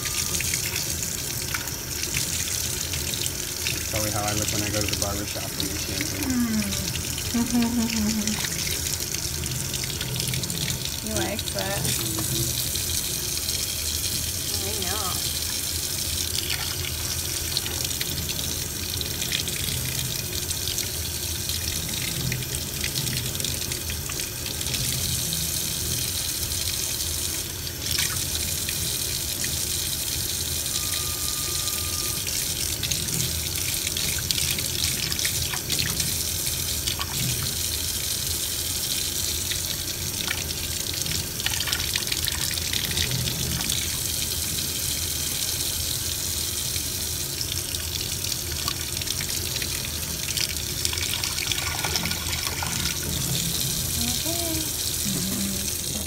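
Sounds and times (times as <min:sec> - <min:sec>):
water running into a metal sink: 0:00.0 - 0:56.0.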